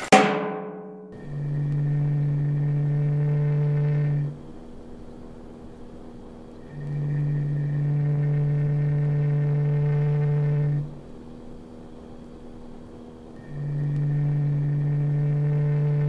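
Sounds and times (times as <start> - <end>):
faint low hum: 1.0 - 16.0
low steady drone note: 1.1 - 5.5, 6.5 - 11.2, 13.4 - 16.0.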